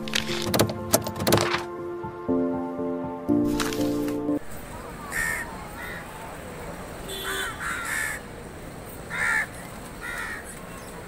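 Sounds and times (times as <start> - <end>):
steady background noise: 4.4 - 11.0
crows cawing: 5.1 - 6.2, 7.1 - 8.3, 9.1 - 10.6.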